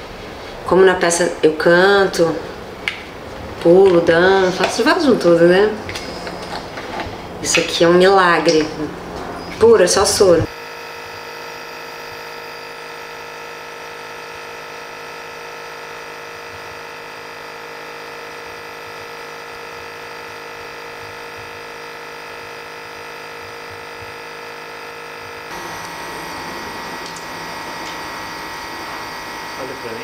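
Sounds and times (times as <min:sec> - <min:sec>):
nebulizer humming: 0:04.2 - 0:30.0.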